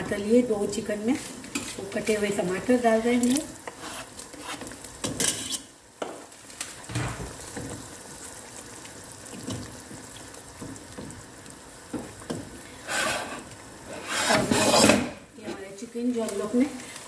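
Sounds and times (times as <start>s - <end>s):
spatula stirring gravy: 3.6s - 5.7s, 11.9s - 15.1s
simmering liquid hissing: 12.6s - 14.4s.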